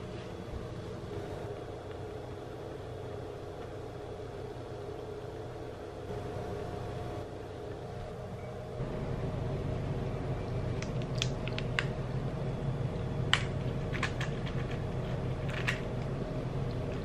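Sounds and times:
low hum: 0:00.0 - 0:17.0
peanuts clicking and rattling: 0:10.7 - 0:12.0, 0:13.3 - 0:17.0.

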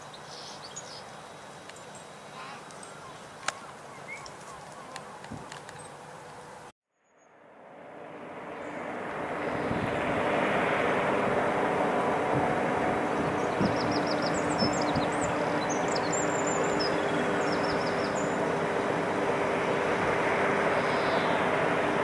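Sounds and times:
small bird chirping: 0:00.0 - 0:05.0, 0:13.4 - 0:18.4
low hums: 0:01.3 - 0:22.0
industrial plant roar: 0:07.4 - 0:22.0.

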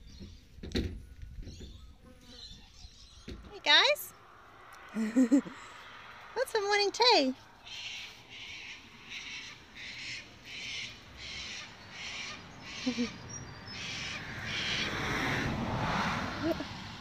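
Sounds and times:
vehicle passing on road: 0:03.0 - 0:17.0
harsh animal calls: 0:07.6 - 0:15.5.

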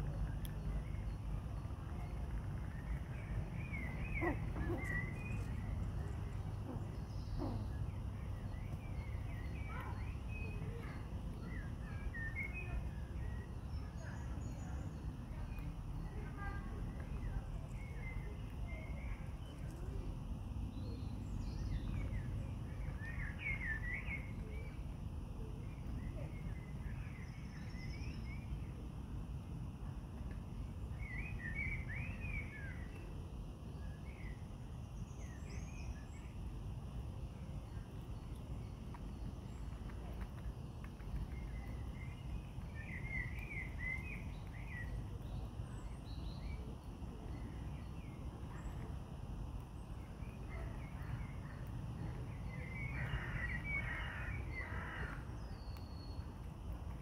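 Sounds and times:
low background rumble: 0:00.0 - 0:57.0
small birds twittering: 0:00.0 - 0:57.0.

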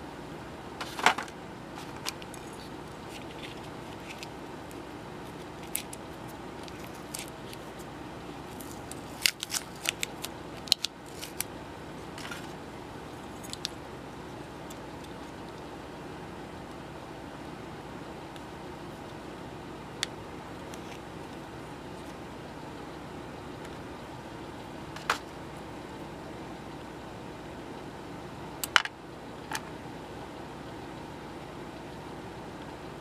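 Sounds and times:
low background noise: 0:00.0 - 0:33.0.

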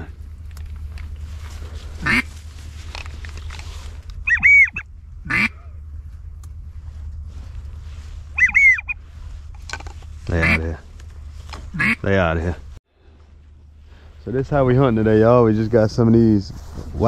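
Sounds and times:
steady low rumble: 0:00.0 - 0:17.0
ducks quacking: 0:02.0 - 0:02.3, 0:04.2 - 0:05.7, 0:08.4 - 0:09.0, 0:10.3 - 0:10.8, 0:11.7 - 0:12.1.

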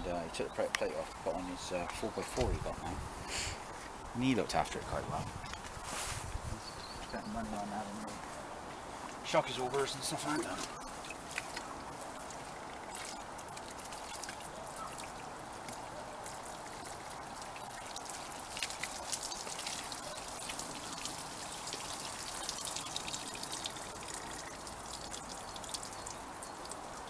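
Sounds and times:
water trickling down glass: 0:09.3 - 0:27.0
sharp drip splashes: 0:09.4 - 0:27.0
water splashing onto a car: 0:09.4 - 0:27.0.

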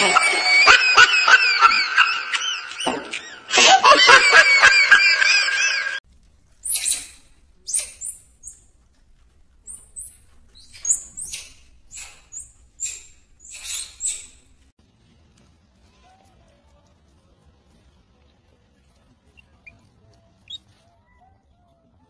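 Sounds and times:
baby giggling: 0:00.0 - 0:06.0
baby monkey high squeaks: 0:06.6 - 0:08.7, 0:09.5 - 0:14.6.

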